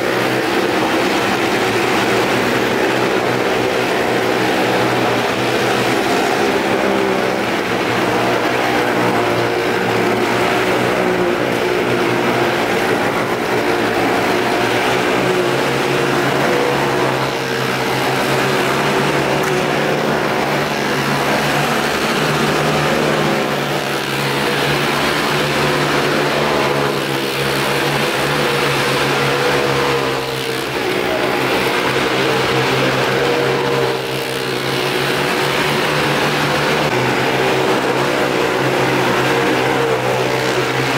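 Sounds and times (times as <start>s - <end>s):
motorcycle engines running: 0.0s - 40.9s.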